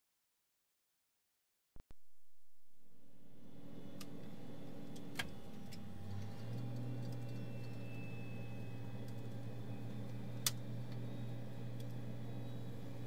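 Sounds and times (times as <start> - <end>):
aircraft engine humming: 2.9 - 13.0.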